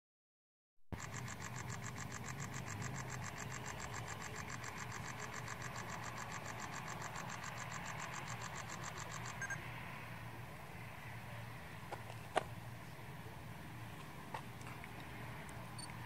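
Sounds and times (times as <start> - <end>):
insect chirping: 1.0 - 9.7
car engines humming: 1.0 - 16.0.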